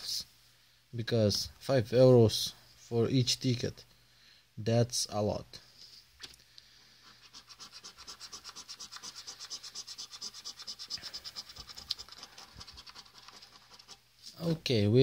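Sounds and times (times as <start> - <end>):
scraping lottery ticket coating: 7.3 - 14.0.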